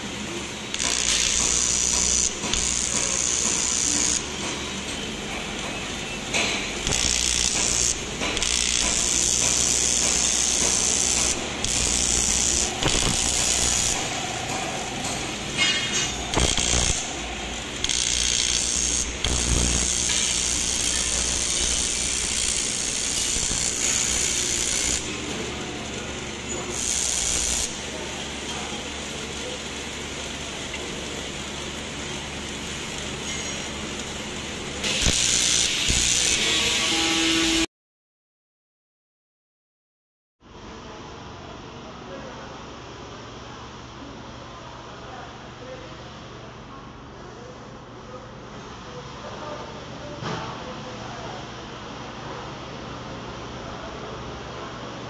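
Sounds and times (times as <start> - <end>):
welding arc buzzing: 0.0 - 37.7.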